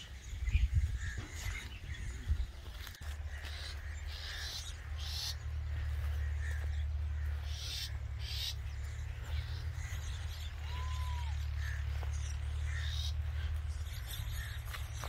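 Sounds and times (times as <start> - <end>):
soft bird chirps: 0.0 - 15.0
steady low rumble: 0.0 - 15.0
harsh hissy bird calls: 3.3 - 15.0.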